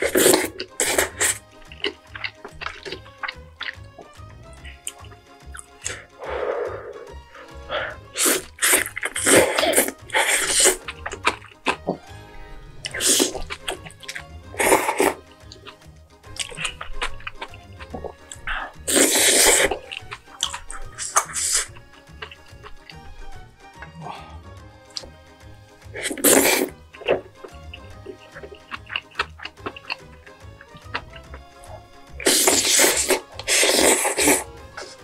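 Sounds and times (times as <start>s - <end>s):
person slurping food: 0.0s - 15.8s, 16.4s - 25.1s, 25.9s - 35.0s
background music: 0.0s - 35.0s
airy breaths: 5.8s - 10.8s, 18.3s - 19.7s, 23.9s - 24.6s.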